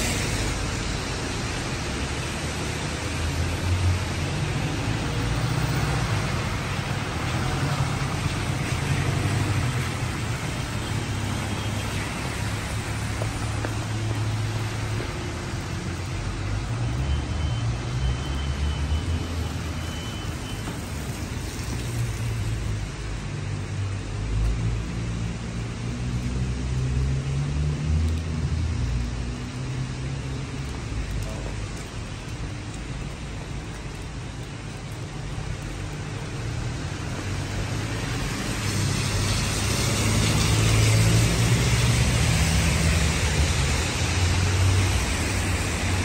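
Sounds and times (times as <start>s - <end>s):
heavy rain hissing: 0.0s - 46.0s
tyres on wet road: 0.0s - 46.0s
passing cars rumbling: 20.6s - 46.0s.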